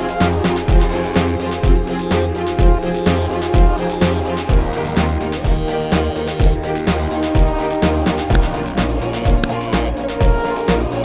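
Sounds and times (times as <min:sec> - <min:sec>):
sustained bass and chord tones: 0:00.0 - 0:11.0
cymbal ticks: 0:07.0 - 0:10.5
deep kick drum: 0:07.4 - 0:10.4.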